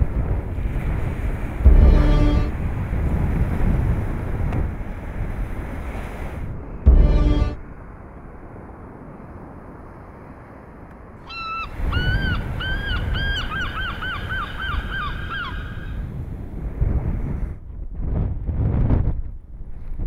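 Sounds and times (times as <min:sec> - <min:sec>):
wind noise: 0:00.0 - 0:20.0
gull yelping calls: 0:11.3 - 0:16.0.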